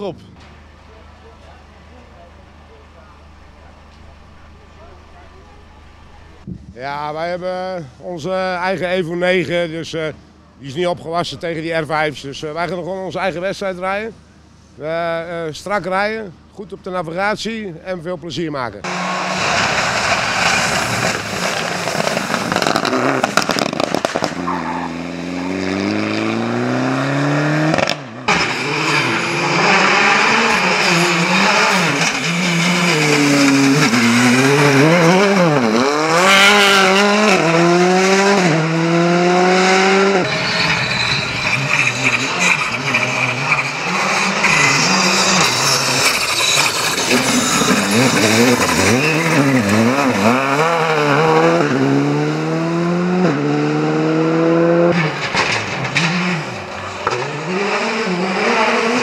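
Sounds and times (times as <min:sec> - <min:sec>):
rally car engines revving: 0:00.0 - 0:06.5, 0:18.8 - 0:59.0
tyres hissing on gravel: 0:19.0 - 0:24.0, 0:40.6 - 0:50.3.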